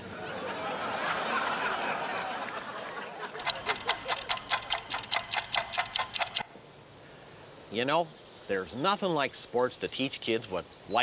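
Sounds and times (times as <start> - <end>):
audience laughing: 0.1 - 4.6
kitchen timer clicking rapidly: 3.4 - 6.4.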